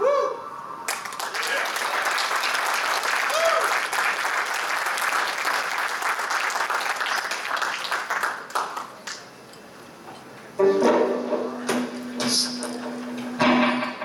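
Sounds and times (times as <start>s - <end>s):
audience applauding: 0.9s - 9.2s.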